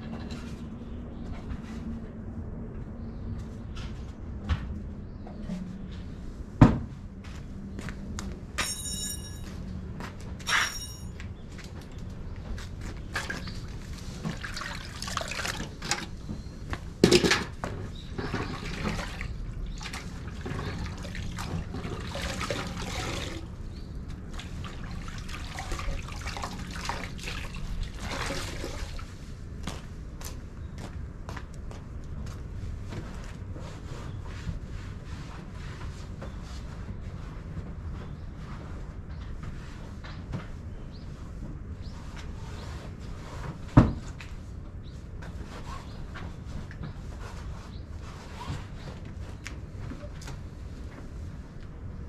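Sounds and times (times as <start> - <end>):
water sloshing and dripping: 13.1 - 16.3, 18.1 - 29.2.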